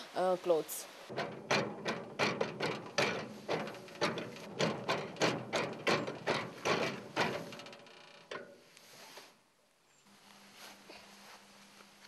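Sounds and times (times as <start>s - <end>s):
washing machine clacking: 1.1s - 8.5s.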